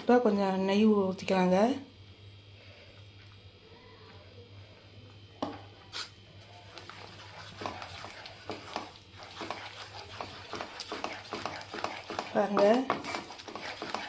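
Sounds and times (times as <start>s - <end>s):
steady low hum: 0.0s - 14.0s
wooden spatula scraping a pan: 6.0s - 14.0s.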